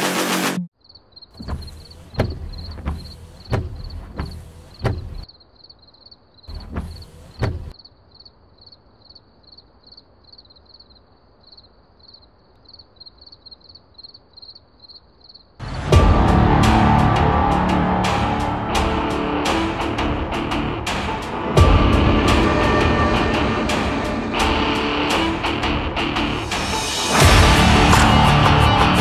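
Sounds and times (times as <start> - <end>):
crickets chirping: 0.7 - 15.6
heavy mechanical clunks: 1.4 - 5.3, 6.5 - 7.7
rumbling clunk: 1.4 - 5.3, 6.5 - 7.7.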